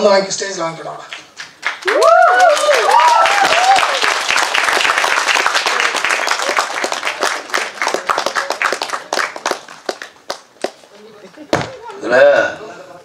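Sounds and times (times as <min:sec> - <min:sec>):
audience applauding: 0:01.2 - 0:10.8.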